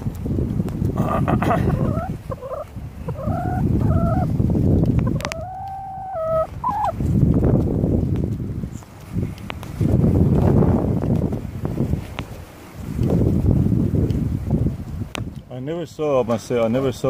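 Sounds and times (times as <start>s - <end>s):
wind rumble: 0.0s - 15.6s
hen calling: 1.0s - 4.4s, 5.0s - 7.0s.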